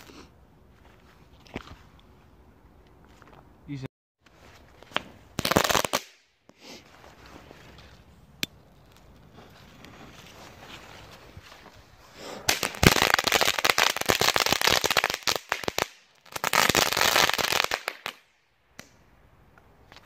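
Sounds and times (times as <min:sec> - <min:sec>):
firework fountain crackling hiss: 0:12.1 - 0:18.1
firework fuse fizzing: 0:12.2 - 0:18.2.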